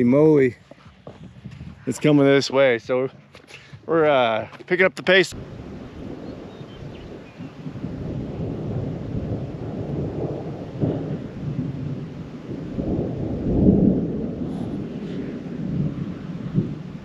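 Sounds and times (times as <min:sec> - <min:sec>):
rolling thunder: 0:05.3 - 0:17.0.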